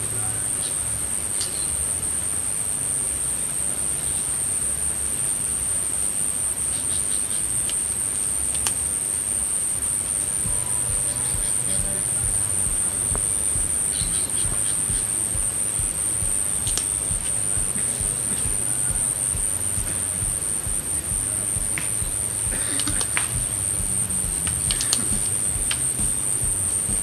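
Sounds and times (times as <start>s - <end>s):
insects trilling: 0.0s - 27.0s
low rumble: 10.4s - 27.0s.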